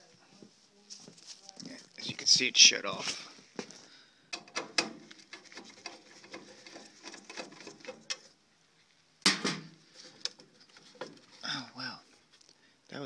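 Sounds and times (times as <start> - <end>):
handling clicks and knocks: 4.3 - 8.3.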